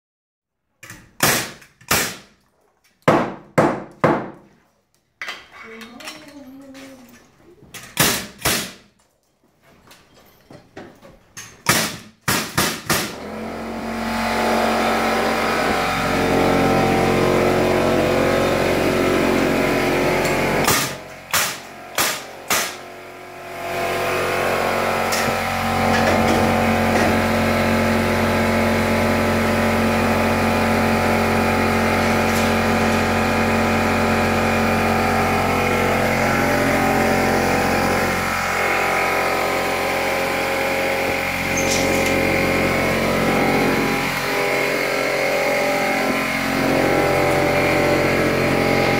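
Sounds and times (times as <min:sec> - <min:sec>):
nail gun shots: 0:01.2 - 0:02.3, 0:07.8 - 0:08.9, 0:11.6 - 0:13.2, 0:20.6 - 0:22.8
air compressor humming: 0:13.0 - 0:48.9.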